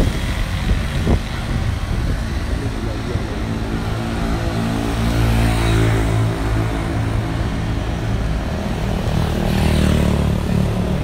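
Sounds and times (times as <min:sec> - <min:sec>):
wind noise: 0:00.0 - 0:09.0
road noise: 0:00.0 - 0:11.0
vehicle engine running: 0:00.0 - 0:11.0.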